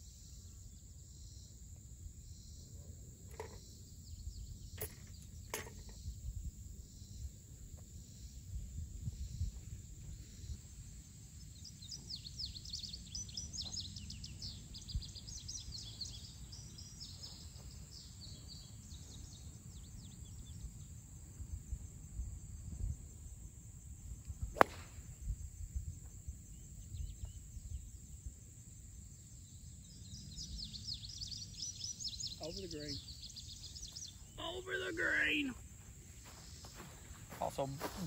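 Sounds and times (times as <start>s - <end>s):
wind rumbling on microphone: 5.4s - 11.1s, 12.4s - 28.4s
birds chirping: 11.5s - 20.9s, 24.5s - 24.8s, 29.6s - 38.0s
golf club striking ball: 24.5s - 24.9s.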